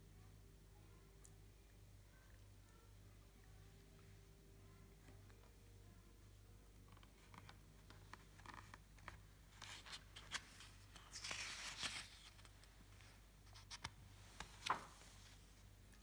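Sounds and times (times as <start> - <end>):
low steady hum: 0.0 - 16.0
book pages rustling: 6.8 - 16.0.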